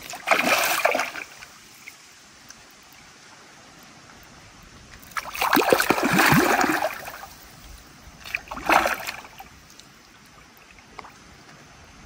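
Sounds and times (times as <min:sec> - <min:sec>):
fish thrashing in water: 0:00.0 - 0:01.4, 0:05.1 - 0:07.2, 0:08.2 - 0:09.4.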